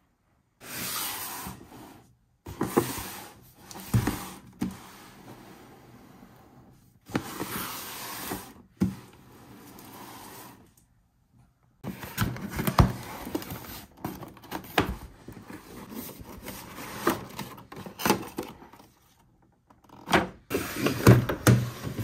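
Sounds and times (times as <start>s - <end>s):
cardboard box scraping on table: 0.6s - 10.7s.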